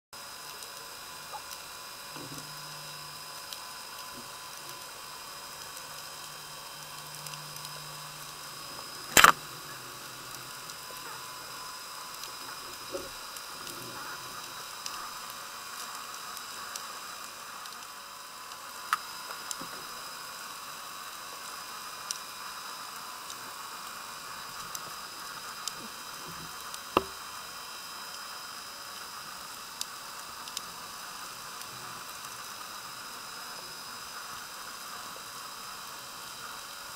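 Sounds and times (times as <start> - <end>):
underwater crackling hiss: 0.2 - 36.9
sharp underwater clicks: 9.1 - 9.4.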